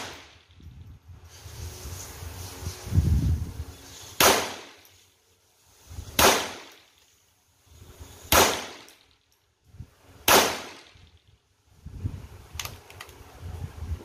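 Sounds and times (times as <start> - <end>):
rifle shots echoing: 0.0 - 0.4, 4.2 - 4.8, 6.2 - 6.8, 8.3 - 8.9, 10.2 - 11.0.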